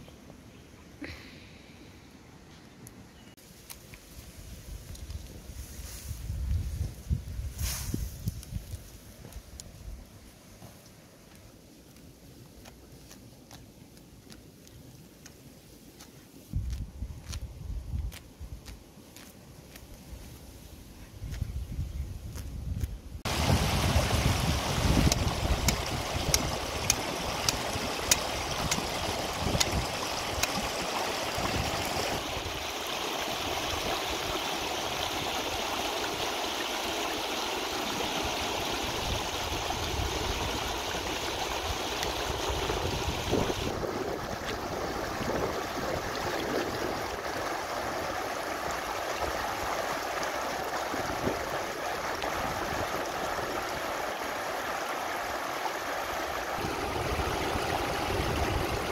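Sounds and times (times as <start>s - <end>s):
river rushing over rocks: 23.3s - 43.6s, 47.0s - 58.9s.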